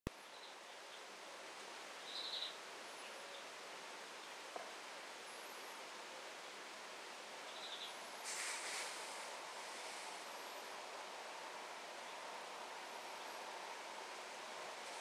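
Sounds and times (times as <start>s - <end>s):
faint background hiss: 0.1s - 15.0s
faint high chirps: 2.0s - 3.5s
short rustle: 8.2s - 10.2s.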